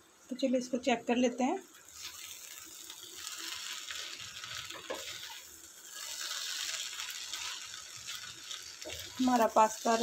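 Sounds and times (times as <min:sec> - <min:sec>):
pasta sizzling in a pan: 0:00.0 - 0:10.0
wooden spatula scraping and knocking: 0:04.7 - 0:05.4.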